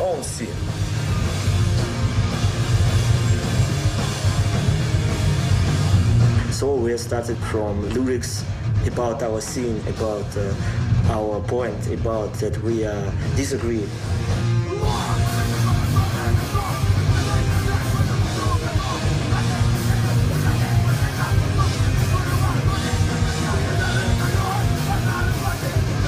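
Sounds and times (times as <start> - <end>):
bass guitar: 0.0 - 26.0
distorted electric guitar: 0.0 - 26.0
drums: 0.0 - 26.0
shouted lead vocal: 14.5 - 26.0.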